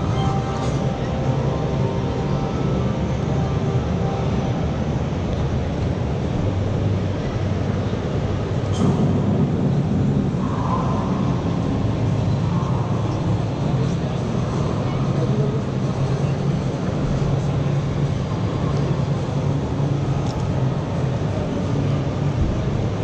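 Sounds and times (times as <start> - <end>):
low hum: 0.0 - 23.0
crowd chatter: 7.1 - 23.0.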